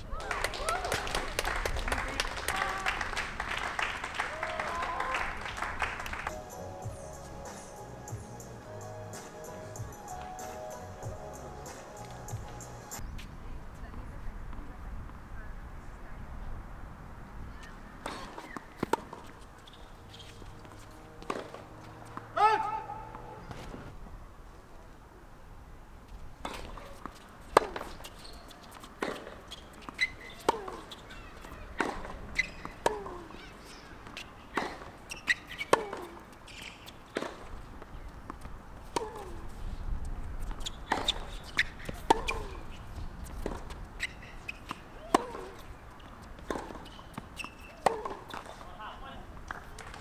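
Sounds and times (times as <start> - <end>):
tennis ball bouncing: 17.6 - 23.8, 26.4 - 39.6, 40.4 - 48.7
tennis racket hitting ball: 18.0 - 19.4, 20.4 - 23.8, 26.4 - 39.5, 40.4 - 45.7, 46.4 - 48.6.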